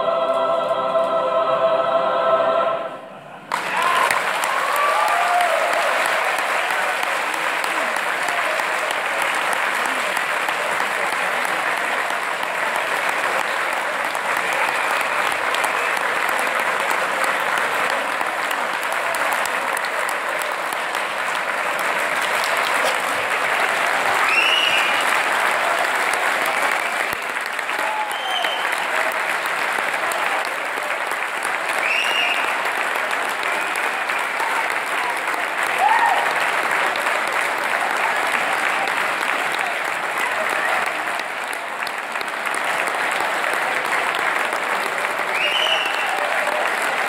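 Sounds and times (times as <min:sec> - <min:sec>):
shouted cheers and whoops: 0:03.5 - 0:07.0, 0:27.7 - 0:28.9, 0:35.7 - 0:36.5
crowd applauding: 0:03.5 - 0:47.0.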